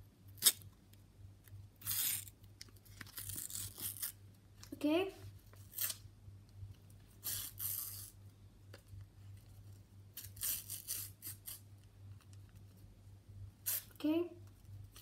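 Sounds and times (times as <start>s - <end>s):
paper packet tearing: 3.0s - 4.2s, 10.2s - 11.6s.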